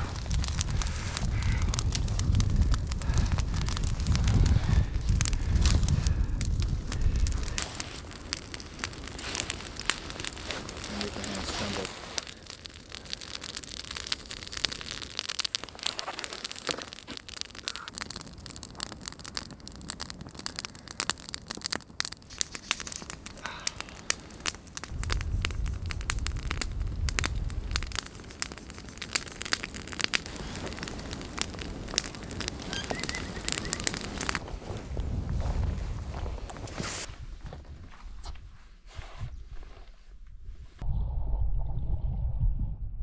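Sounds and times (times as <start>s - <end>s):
campfire crackling and popping: 0.0s - 37.1s
low rumble: 40.4s - 43.0s.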